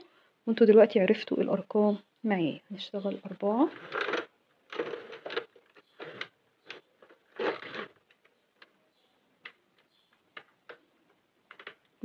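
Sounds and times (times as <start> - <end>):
rustling scrapes: 3.6 - 8.2.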